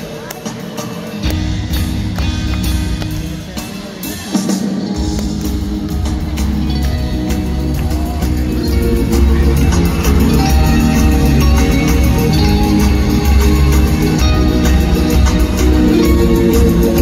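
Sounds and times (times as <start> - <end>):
drums: 0.0 - 17.0
electric guitars: 0.0 - 17.0
upright double bass: 5.2 - 17.0.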